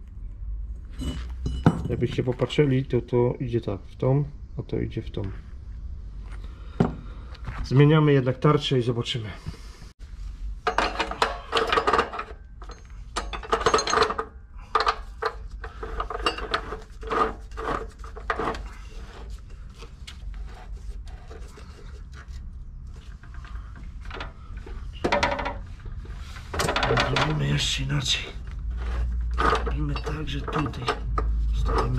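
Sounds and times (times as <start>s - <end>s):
metal scraping and clunking: 10.4s - 22.3s, 22.9s - 31.9s.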